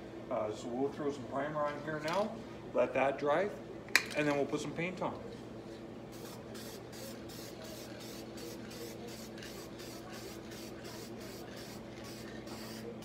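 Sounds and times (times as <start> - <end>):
aerosol spray can hissing: 6.2 - 12.9.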